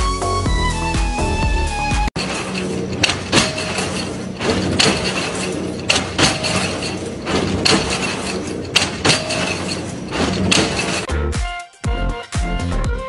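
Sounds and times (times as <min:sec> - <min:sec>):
sharp metallic knocks: 0:02.2 - 0:11.1
weaving machine clatter: 0:02.2 - 0:11.1.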